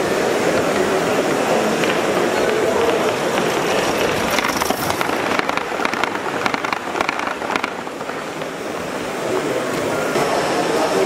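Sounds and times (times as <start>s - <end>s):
model train wheels clicking on track: 0.0s - 11.0s.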